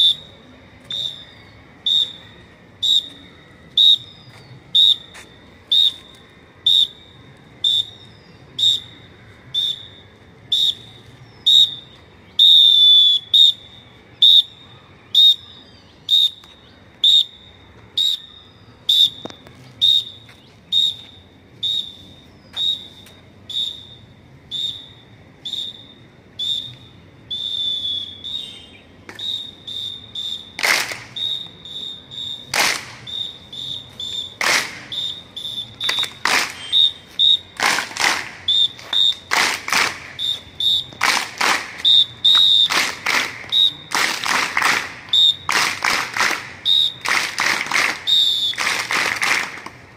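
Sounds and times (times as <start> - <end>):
shrill whistle blasts: 0.0 - 44.2, 44.8 - 48.9
loud sharp claps: 30.5 - 31.3, 32.4 - 33.2, 34.2 - 37.0, 37.6 - 49.9.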